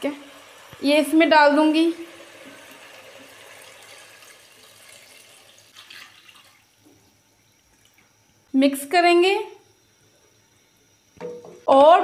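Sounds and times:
water pouring into a pot: 0.0s - 6.8s.

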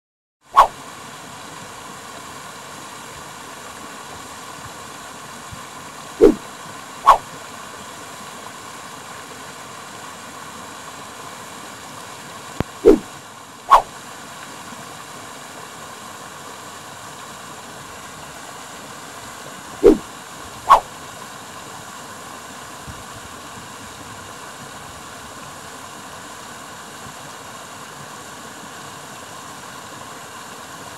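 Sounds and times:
water churning and spraying: 0.6s - 12.0s, 12.6s - 30.9s
gliding whooshes: 6.2s - 6.4s, 12.8s - 13.1s, 19.8s - 20.0s.

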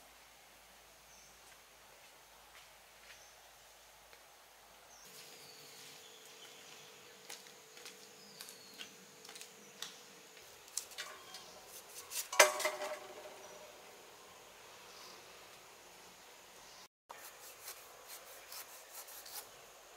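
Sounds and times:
bird chirping: 4.9s - 10.2s, 10.8s - 17.5s
metal bowl clattering: 12.3s - 13.7s.

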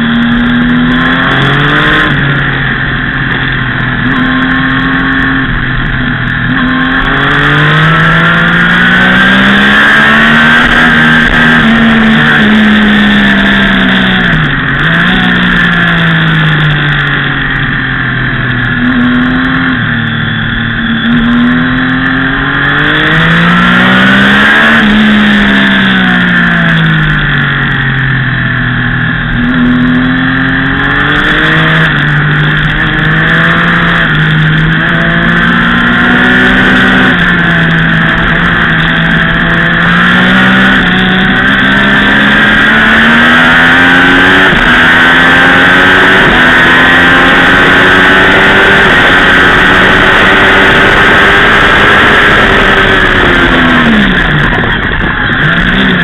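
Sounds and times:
motorcycle engine at high revs: 0.0s - 56.0s
wind rush on microphone: 30.7s - 56.0s.

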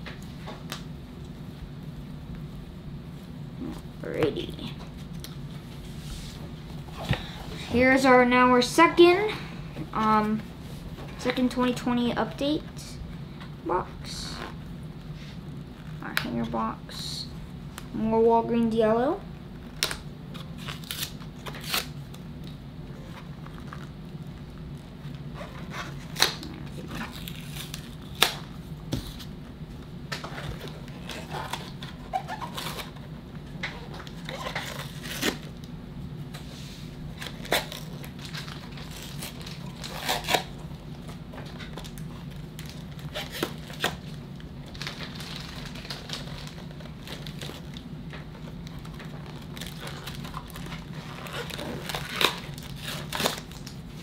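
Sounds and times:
packaging tearing and crinkling: 19.7s - 22.2s, 25.6s - 28.5s, 30.3s - 33.0s, 33.9s - 35.6s, 37.2s - 40.7s, 41.5s - 54.0s.

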